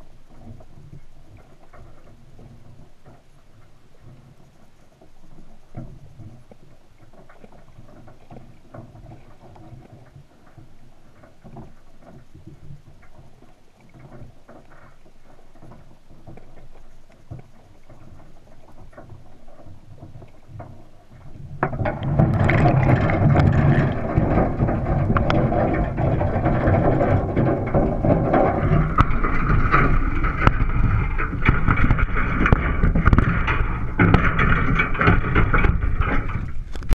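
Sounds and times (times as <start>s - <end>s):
faint underwater crackling: 0.0s - 37.0s
rush of water: 0.0s - 37.0s.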